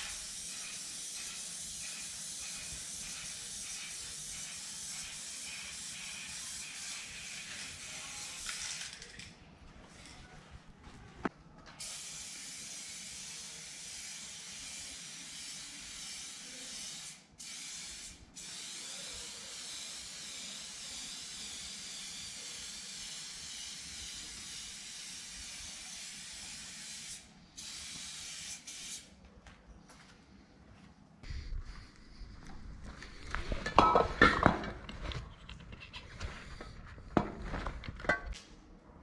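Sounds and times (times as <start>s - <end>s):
spray paint can hissing: 0.0s - 9.3s, 11.8s - 29.1s.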